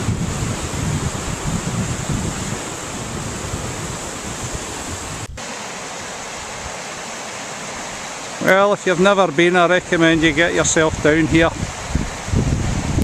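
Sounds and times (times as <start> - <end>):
wind buffeting microphone: 0.0 - 5.4, 10.0 - 13.0
river rushing over rapids: 0.0 - 13.0.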